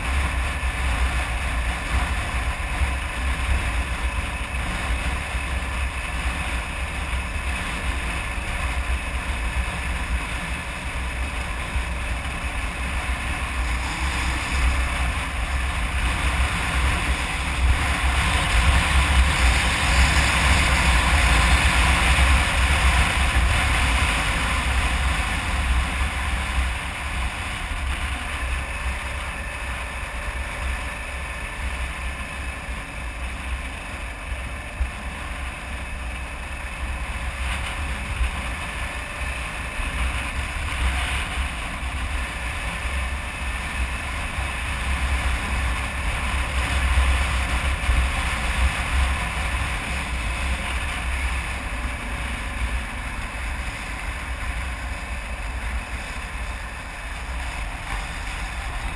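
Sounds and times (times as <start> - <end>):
motorcycle engine and tyres: 0.0 - 58.9
wind rushing over microphone: 0.0 - 58.9.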